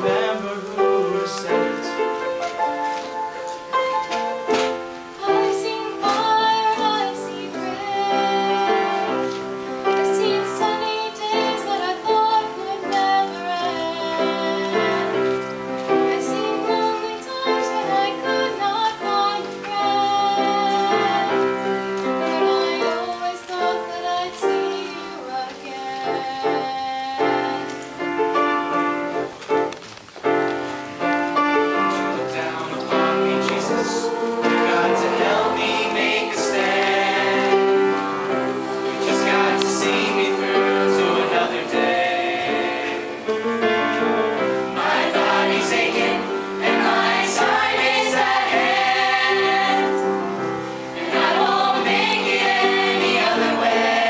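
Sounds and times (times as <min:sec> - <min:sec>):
piano accompaniment: 0:00.0 - 0:54.0
girl singing: 0:05.2 - 0:09.3, 0:10.0 - 0:15.2, 0:16.0 - 0:27.8.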